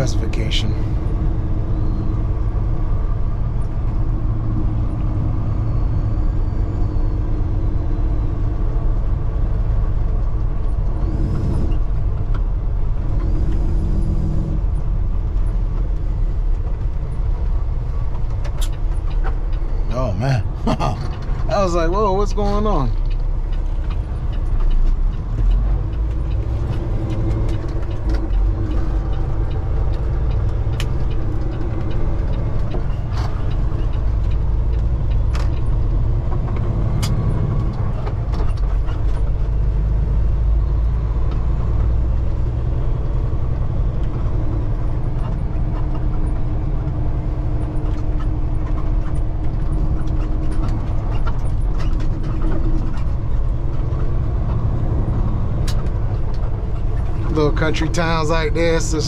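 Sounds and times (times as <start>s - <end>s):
diesel engine and tyres rumbling: 0.0s - 59.0s
cab rattles: 41.0s - 59.0s.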